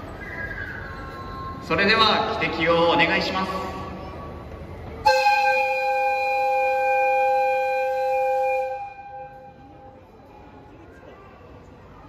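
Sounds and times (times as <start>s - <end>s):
locomotive whistle: 5.0s - 10.0s.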